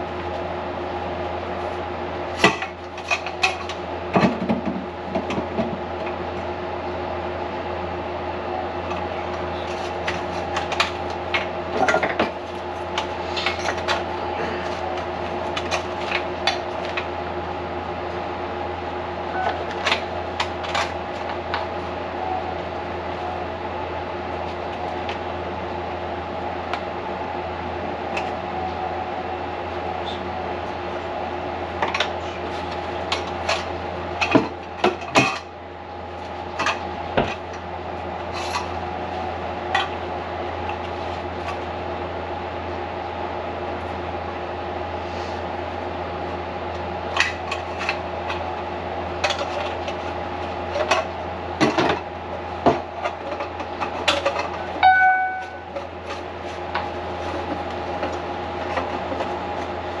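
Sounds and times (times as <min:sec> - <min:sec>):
short tone: 0:19.3 - 0:19.7, 0:54.7 - 0:55.8.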